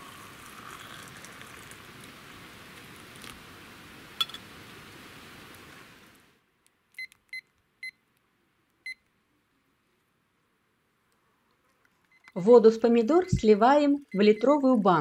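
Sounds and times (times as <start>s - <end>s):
water pouring from kettle: 0.0s - 2.2s
kitchen timer beeps: 13.2s - 14.6s.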